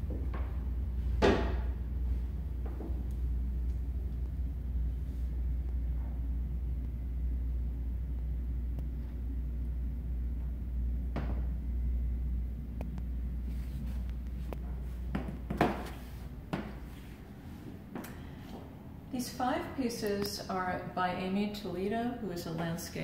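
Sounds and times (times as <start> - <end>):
footsteps: 0.0 - 3.8, 13.4 - 18.8
handling knocks and thumps: 14.4 - 17.0.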